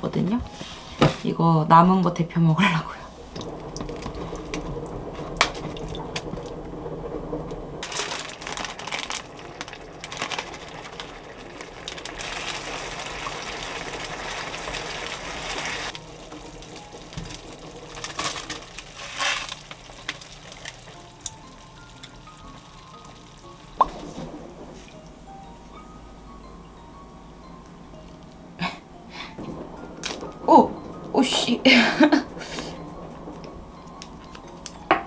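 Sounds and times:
dry noodles clattering into a pot: 7.8s - 15.3s, 16.4s - 21.3s
sauce sizzling in a pan: 9.3s - 24.0s.

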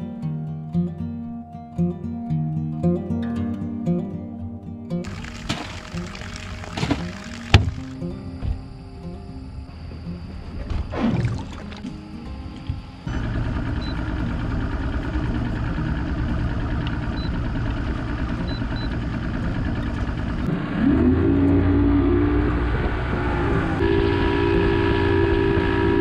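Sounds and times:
outboard motor running: 5.0s - 8.9s, 10.2s - 26.0s.

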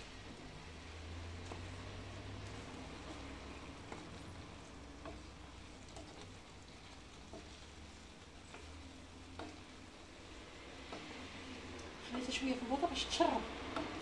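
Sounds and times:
sauce sizzling: 0.0s - 14.0s
spatula tapping pan: 0.7s - 11.9s.

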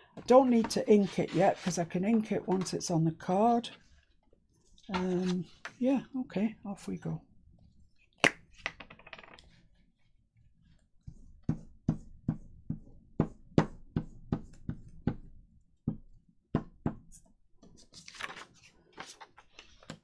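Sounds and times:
glue stick knocking on paper: 11.4s - 17.1s.

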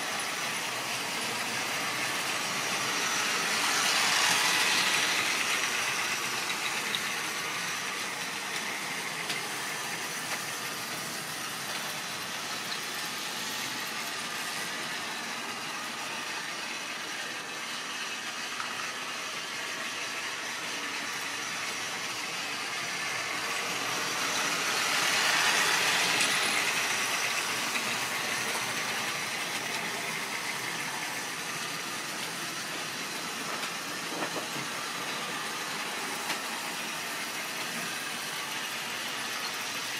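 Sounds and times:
small wheels rattling on track: 0.2s - 14.7s, 20.0s - 35.6s.

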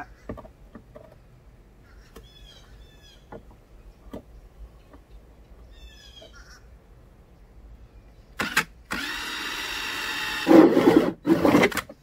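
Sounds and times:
bird chirping: 1.1s - 8.5s.

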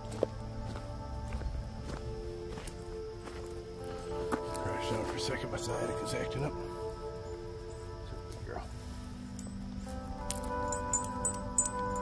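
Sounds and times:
footsteps crunching on trail: 0.0s - 6.0s
music of held tones: 0.0s - 12.0s.

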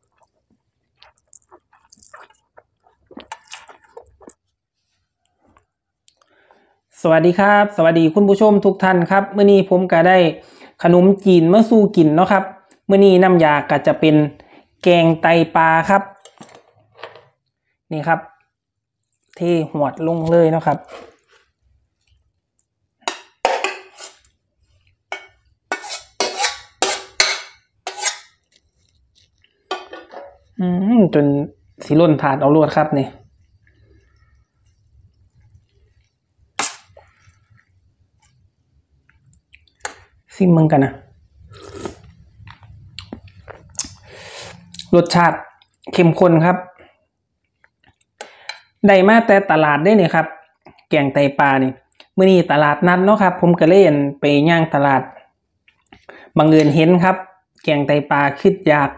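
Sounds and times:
slurping and chewing noodles: 0.0s - 4.5s, 41.3s - 46.0s
metal spoon scraping metal pot: 23.0s - 24.3s, 25.1s - 28.6s.

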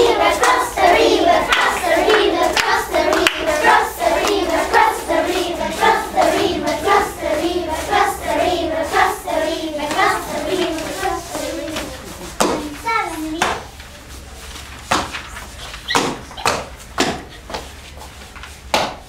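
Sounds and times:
hands clapping: 0.0s - 7.2s, 9.8s - 13.7s, 18.3s - 19.0s
children singing: 0.0s - 12.8s.

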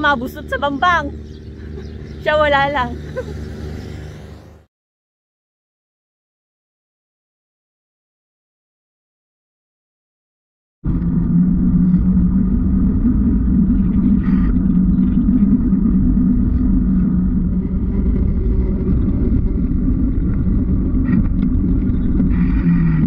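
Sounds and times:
constant low hum: 0.0s - 4.7s, 10.8s - 23.0s
muffled wind and road noise: 0.0s - 4.7s, 10.9s - 23.0s.

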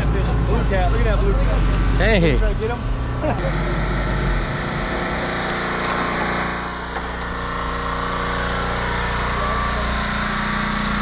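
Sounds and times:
small engine idling: 3.2s - 11.0s.

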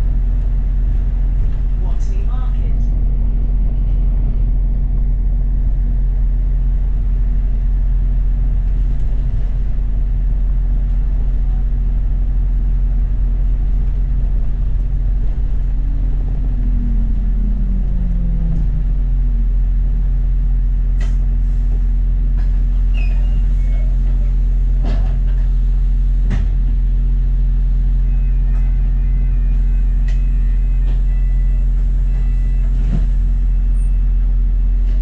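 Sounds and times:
bus engine and road rumble: 0.0s - 35.0s
humming tone sliding down: 13.5s - 21.4s.

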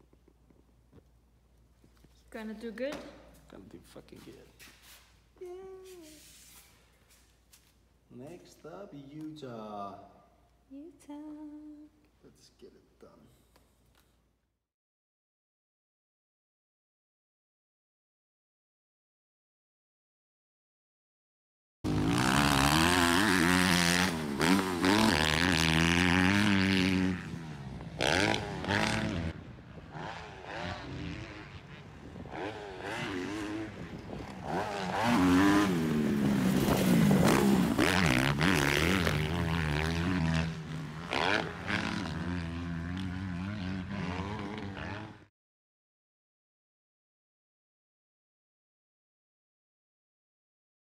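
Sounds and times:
motocross bike engine revving: 21.9s - 45.3s.

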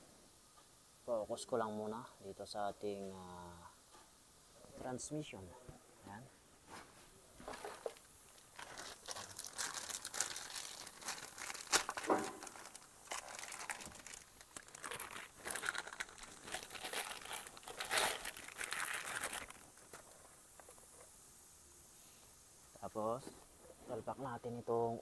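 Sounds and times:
plastic bag crinkling: 7.4s - 21.0s.

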